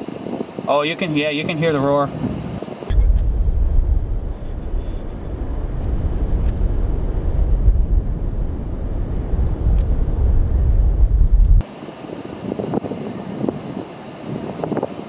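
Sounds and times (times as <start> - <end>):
tornado roaring: 2.9 - 11.6.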